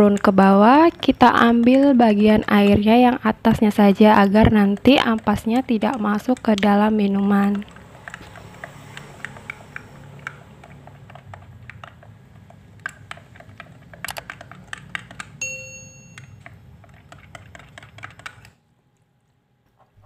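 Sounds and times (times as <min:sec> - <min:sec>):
short ding: 0:15.4 - 0:16.3.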